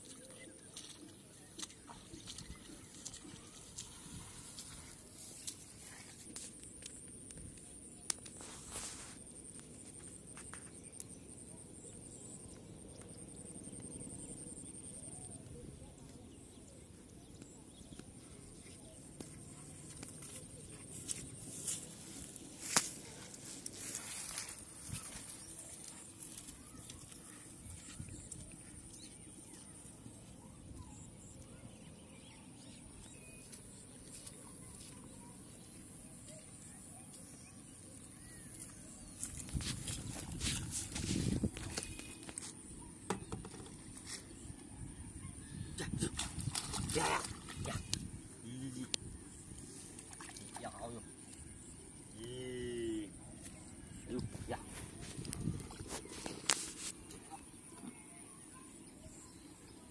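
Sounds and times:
faint bird chirps: 10.0 - 59.9.

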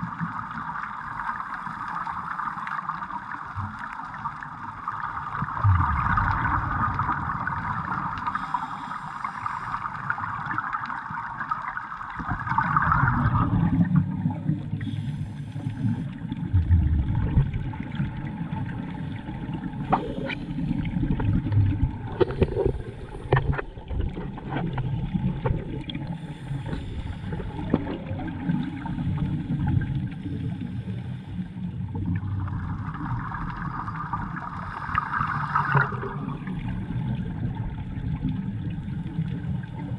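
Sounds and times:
low churning water rush: 0.0 - 39.9
regulator exhaust bubbles gurgling: 5.2 - 8.4, 15.7 - 30.5.

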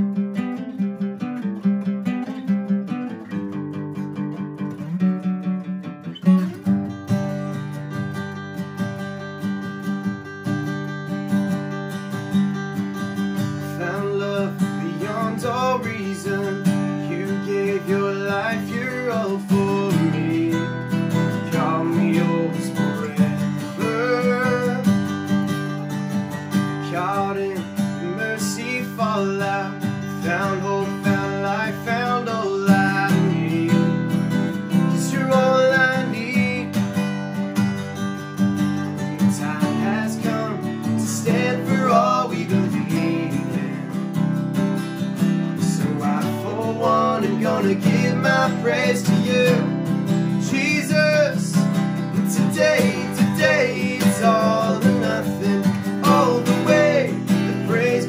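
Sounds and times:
acoustic guitars playing: 0.0 - 58.0.

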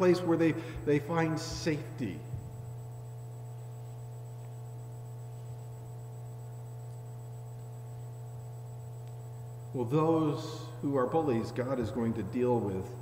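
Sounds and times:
faint high-pitched whine: 0.0 - 13.0
low electrical hum: 0.0 - 13.0.

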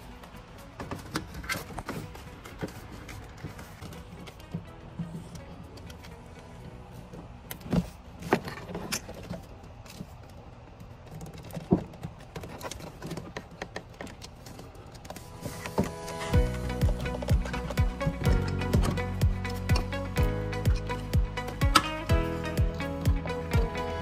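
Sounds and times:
background music: 0.0 - 8.6, 15.1 - 24.0.

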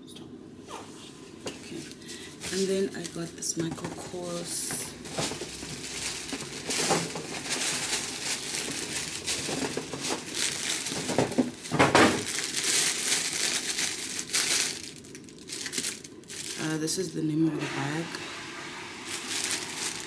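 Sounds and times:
tissue paper rustling: 1.8 - 3.4, 4.2 - 16.7, 18.7 - 20.0
plastic bag crinkling: 1.9 - 17.0, 18.8 - 20.0.

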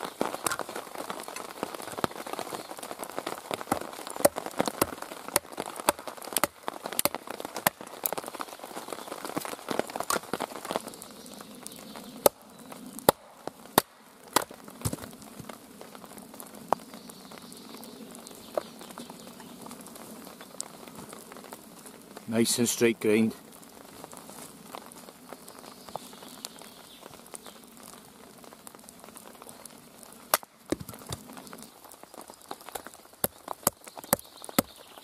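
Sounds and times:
falling rain hiss: 0.0 - 35.0
axe chopping wood: 3.6 - 7.8, 13.0 - 15.1.

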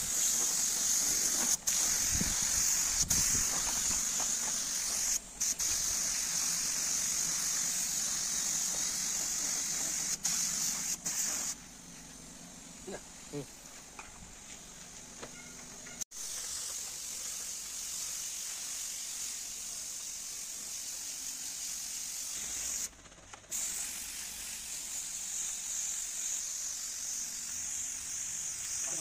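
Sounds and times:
spray gun air hiss: 0.0 - 13.8, 16.1 - 22.9, 23.5 - 29.0.

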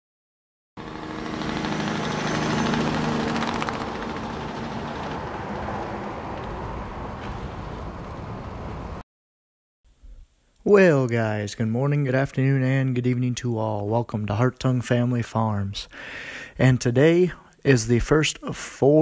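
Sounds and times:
tractor diesel engine running: 0.8 - 7.0.

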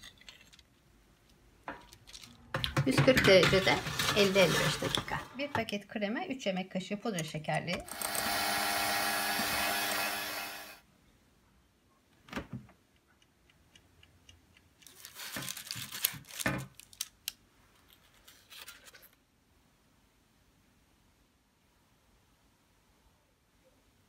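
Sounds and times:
metal tray knocks and clatters: 2.5 - 5.7
electric hand mixer: 7.8 - 10.8.

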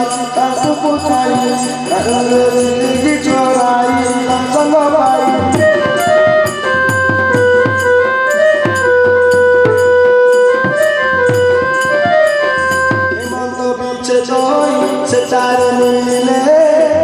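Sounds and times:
wind instrument melody: 0.0 - 17.0
barrel drum beating: 5.1 - 13.4.

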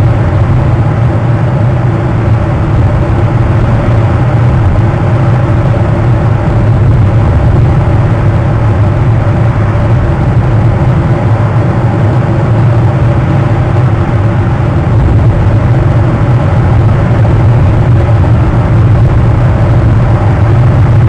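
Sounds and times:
low mechanical drone: 0.0 - 21.0.

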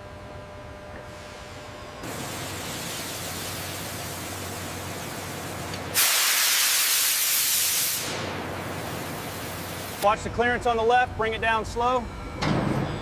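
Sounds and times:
pressure hissing from a fitting: 6.0 - 8.2.

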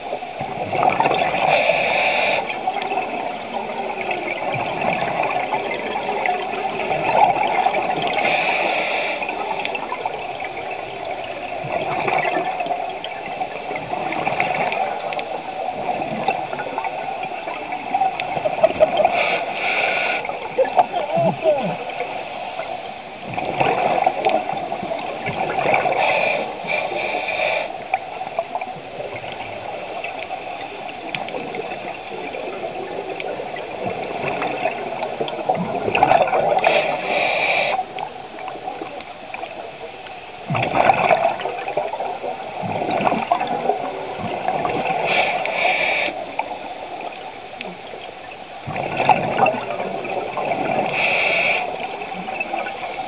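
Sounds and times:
exhaled bubbles gurgling: 0.0 - 53.0
regulator inhale hiss: 1.4 - 2.6, 8.2 - 9.5, 19.1 - 20.4, 25.8 - 28.0, 36.6 - 38.0, 45.0 - 46.4, 50.8 - 52.0.

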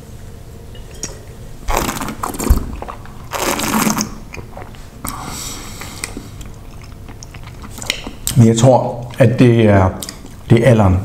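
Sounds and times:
wine slurping: 0.7 - 8.3.

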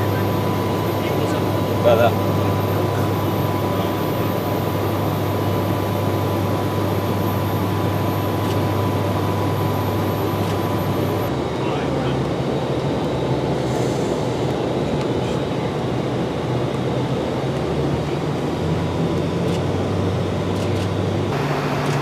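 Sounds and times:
low hum: 0.0 - 11.3
jet cabin engine drone: 0.0 - 22.0.

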